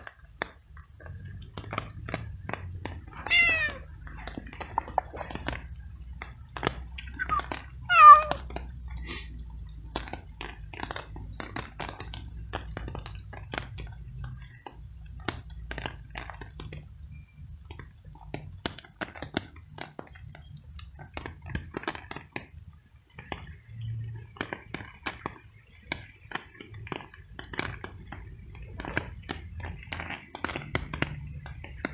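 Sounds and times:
cat chewing wetly: 0:00.0 - 0:16.9, 0:24.4 - 0:31.9.

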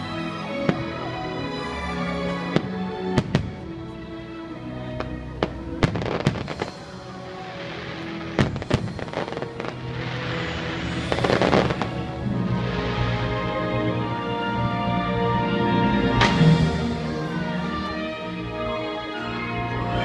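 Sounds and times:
show music: 0:00.0 - 0:20.0
fireworks bangs: 0:02.6 - 0:03.6, 0:05.4 - 0:13.5
fireworks crackling fizz: 0:05.0 - 0:13.9.

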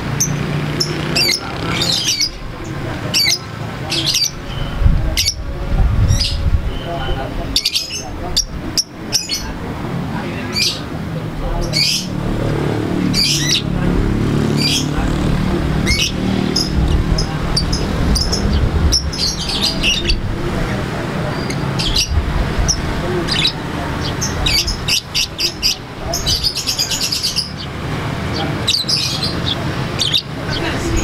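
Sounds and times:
low background rumble: 0:10.8 - 0:26.5
lovebird chirping: 0:15.8 - 0:20.3.

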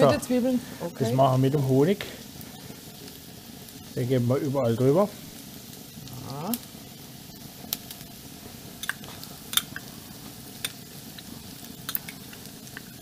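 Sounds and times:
onions sizzling in a pan: 0:00.0 - 0:13.0
utensils clicking against pan: 0:08.8 - 0:09.9, 0:11.8 - 0:12.9.

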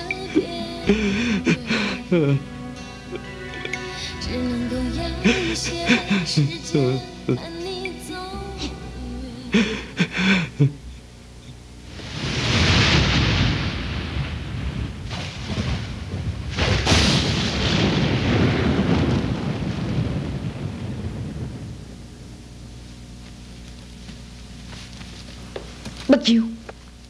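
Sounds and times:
sharp thunder crack: 0:11.9 - 0:22.8
thunder rumbling: 0:11.9 - 0:24.7.

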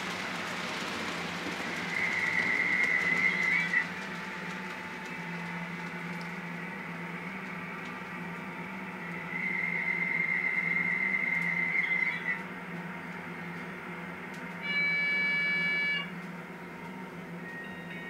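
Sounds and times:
model train low hum: 0:00.0 - 0:18.0
high steady tone: 0:14.6 - 0:16.1.

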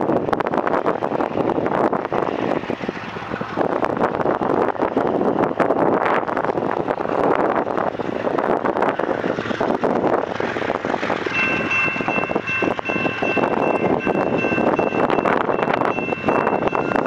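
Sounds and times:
wind buffeting microphone: 0:00.0 - 0:17.0
distant train approaching: 0:10.2 - 0:17.0
faint steady high tone: 0:11.4 - 0:17.0.

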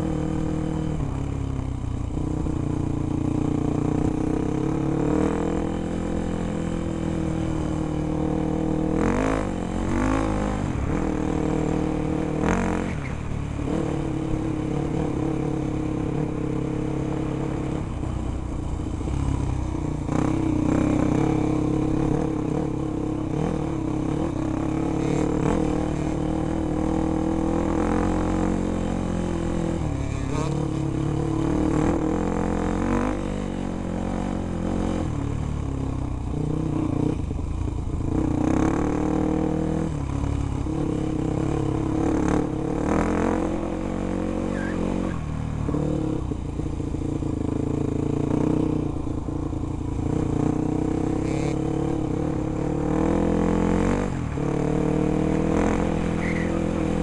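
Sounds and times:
dirt bike engine revving: 0:19.0 - 0:35.1, 0:38.1 - 0:40.0, 0:40.6 - 0:46.3, 0:50.0 - 0:57.0.

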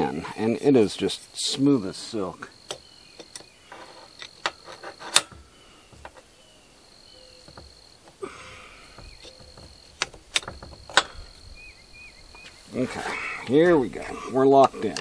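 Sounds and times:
wrenches clinking on metal: 0:03.2 - 0:06.3, 0:08.9 - 0:11.3, 0:14.0 - 0:15.0.

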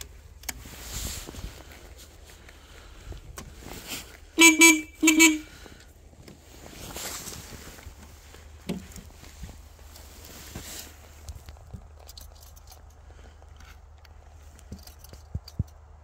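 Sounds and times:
motorcycle horn honks: 0:04.4 - 0:05.7.

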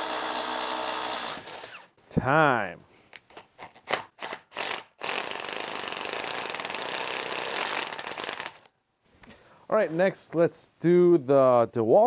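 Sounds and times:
impact driver boring into wood: 0:00.0 - 0:02.0, 0:03.9 - 0:08.7.

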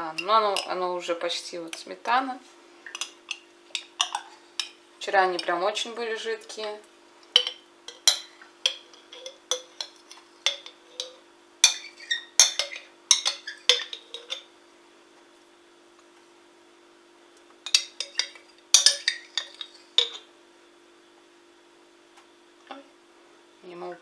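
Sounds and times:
spoon clinking on glass bowl: 0:02.9 - 0:04.8, 0:07.4 - 0:14.5, 0:17.7 - 0:20.3.

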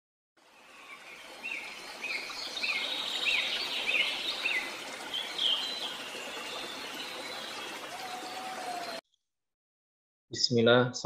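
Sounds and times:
stream water flowing: 0:00.4 - 0:09.0
birds singing: 0:00.6 - 0:09.0.

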